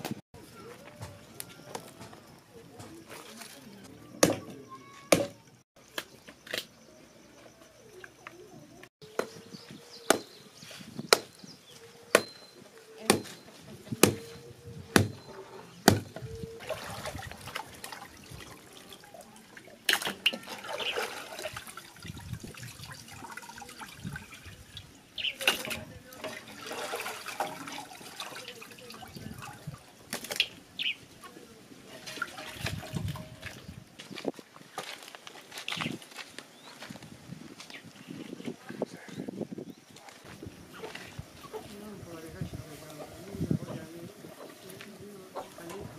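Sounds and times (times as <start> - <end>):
knife chopping raw meat: 12.1 - 12.4, 13.1 - 13.3, 14.0 - 14.2, 14.9 - 15.2
water splashing in metal pot: 16.6 - 29.8, 31.9 - 33.7.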